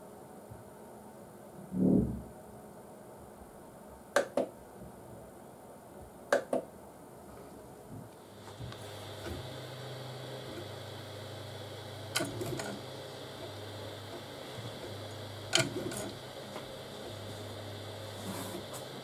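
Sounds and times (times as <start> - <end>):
printer fans whirring: 2.6 - 19.0
stepper motors humming: 8.2 - 19.0.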